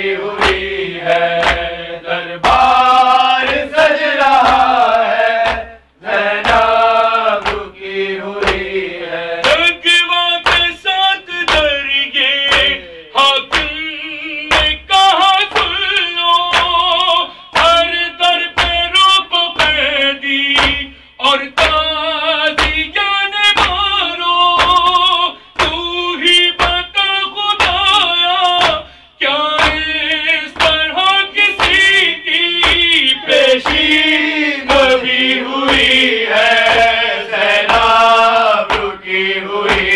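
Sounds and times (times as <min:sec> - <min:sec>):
hands striking chest: 0:00.4 - 0:00.7, 0:01.3 - 0:01.8, 0:02.4 - 0:02.7, 0:04.3 - 0:04.8, 0:05.4 - 0:05.8, 0:07.4 - 0:07.7, 0:08.4 - 0:08.8, 0:33.6 - 0:34.0, 0:35.6 - 0:36.0, 0:36.6 - 0:37.0, 0:37.6 - 0:38.0, 0:38.7 - 0:39.0, 0:39.7 - 0:39.9
man chanting into microphone: 0:06.4 - 0:39.1.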